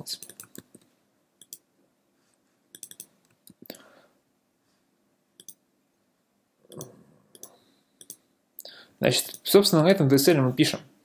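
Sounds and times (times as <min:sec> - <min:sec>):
keyboard and mouse clicks: 0:00.1 - 0:01.7, 0:02.7 - 0:03.7, 0:05.4 - 0:05.6, 0:06.7 - 0:08.2.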